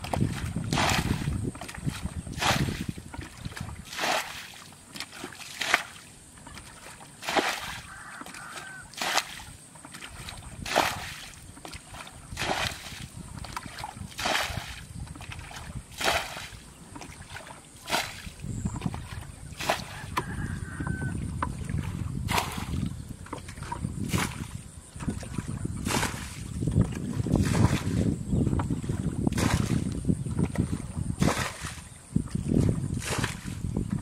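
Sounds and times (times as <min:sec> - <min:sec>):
water sloshing in bucket: 0:00.0 - 0:34.0
splash of thrown water: 0:00.4 - 0:01.3, 0:01.9 - 0:03.0, 0:03.8 - 0:06.0, 0:06.6 - 0:09.5, 0:10.2 - 0:11.4, 0:12.3 - 0:13.0, 0:13.7 - 0:14.9, 0:15.5 - 0:16.6, 0:17.3 - 0:18.3, 0:19.6 - 0:20.6, 0:22.3 - 0:22.9.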